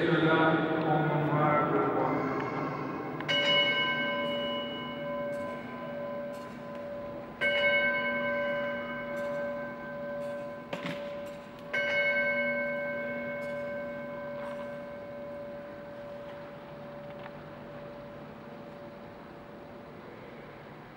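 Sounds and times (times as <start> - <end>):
altar bell ringing: 3.2 - 19.1.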